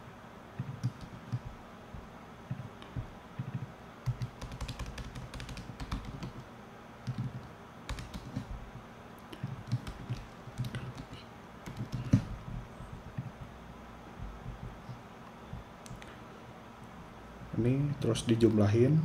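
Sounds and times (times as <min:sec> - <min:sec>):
computer keyboard typing: 0:00.6 - 0:01.6, 0:03.4 - 0:08.7, 0:09.3 - 0:13.5.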